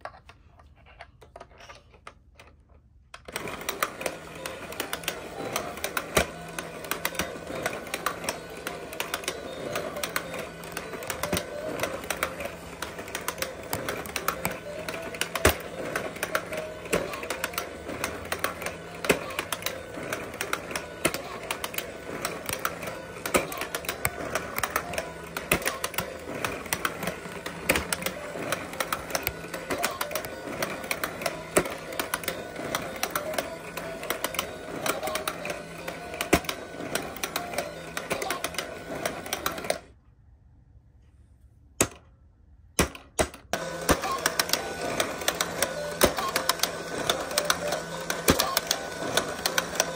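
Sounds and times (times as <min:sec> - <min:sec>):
plastic hammer clacking: 0:03.2 - 0:39.8
toy electronic tune: 0:03.3 - 0:39.9, 0:43.6 - 0:49.9.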